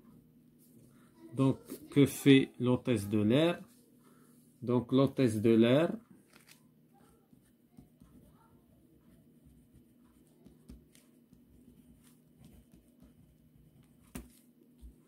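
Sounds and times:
pen scratching on paper: 0:07.0 - 0:14.2.

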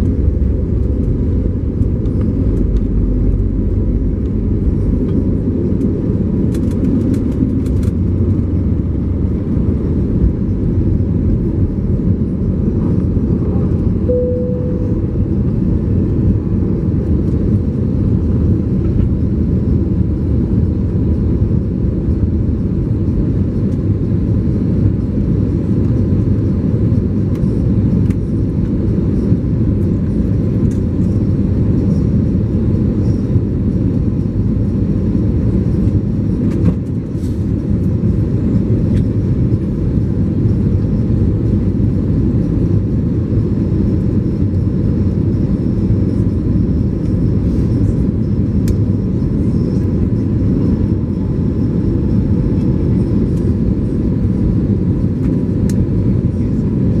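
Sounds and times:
airplane cabin engine roar: 0:00.0 - 0:57.0.

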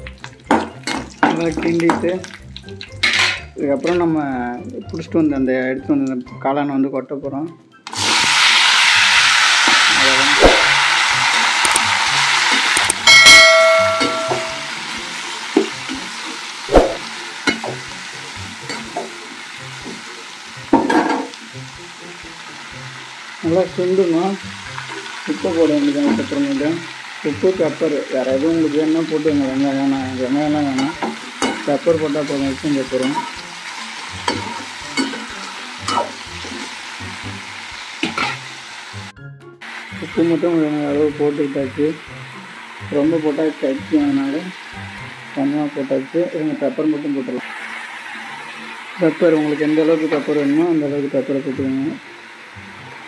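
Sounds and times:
oil sizzling: 0:00.0 - 0:05.1, 0:07.8 - 0:53.0
metal spatula scraping a pan: 0:03.0 - 0:03.5, 0:34.0 - 0:36.8
metal ladle clanging on pan: 0:03.0 - 0:04.0, 0:12.9 - 0:14.8, 0:16.7 - 0:17.9, 0:20.7 - 0:21.4, 0:30.6 - 0:33.4, 0:34.1 - 0:36.7, 0:38.0 - 0:38.5.

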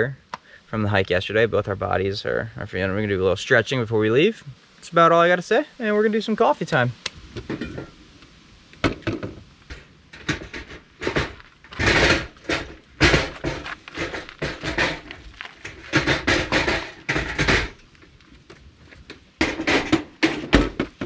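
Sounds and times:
scraping bursts: 0:09.7 - 0:17.8
gear knocking and rustling: 0:09.7 - 0:21.0.

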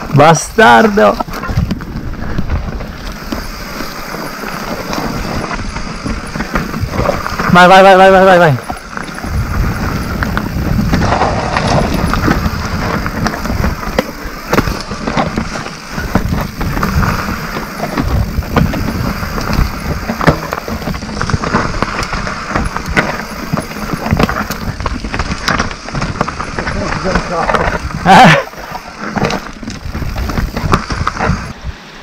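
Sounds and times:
bike knocks and rattles: 0:00.0 - 0:31.6
bike tyres crunching over dirt: 0:00.0 - 0:32.0
wind rumble on microphone: 0:01.1 - 0:32.0.

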